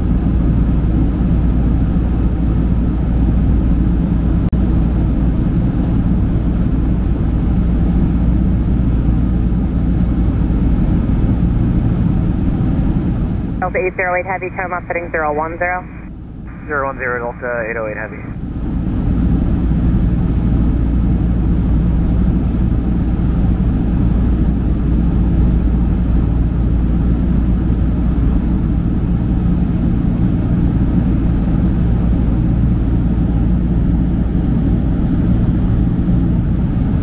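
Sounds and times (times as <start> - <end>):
jet cabin engine rumble: 0.0 - 37.0.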